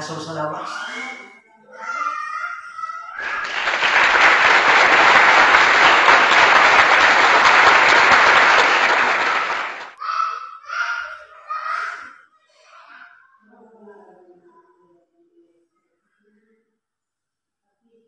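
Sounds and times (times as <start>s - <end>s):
loud applause: 2.8s - 11.1s.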